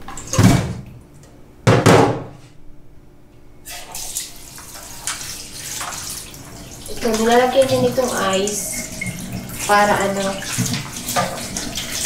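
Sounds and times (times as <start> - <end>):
running water from a tap: 3.7 - 12.0
water sloshing and splashing: 3.7 - 12.0.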